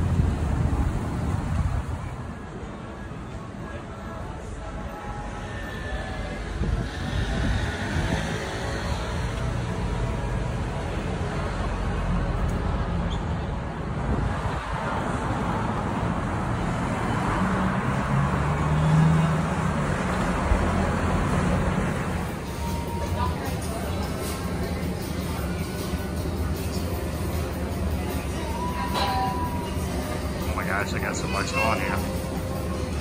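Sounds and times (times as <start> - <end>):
cars passing: 0.0 - 33.0
vehicle engine humming: 0.0 - 33.0.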